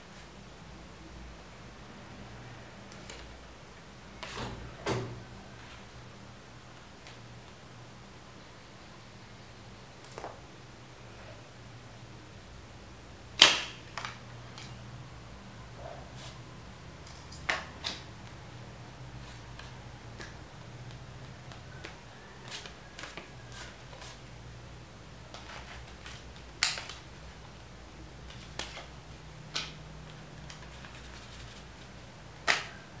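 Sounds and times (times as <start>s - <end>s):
playing cards snapping and clicking: 13.4s - 14.8s, 19.5s - 23.7s, 25.4s - 27.1s, 32.4s - 32.8s.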